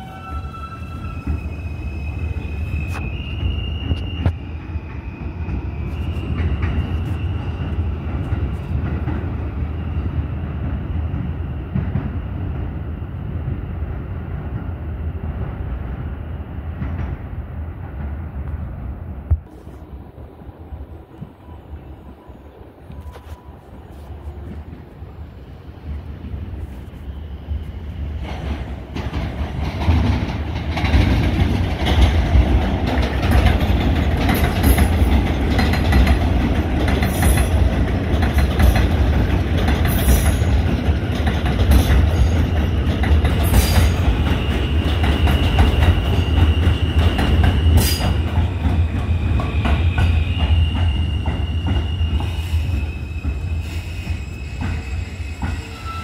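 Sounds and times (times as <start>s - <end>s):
high wheel squeals: 0.0s - 8.0s, 42.2s - 56.0s
subway train rumble: 0.0s - 56.0s.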